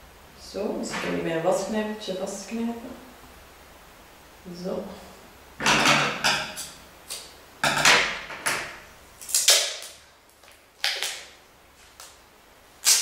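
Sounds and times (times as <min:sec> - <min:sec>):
adhesive tape pulled off roll: 0:09.2 - 0:10.0, 0:12.8 - 0:13.0.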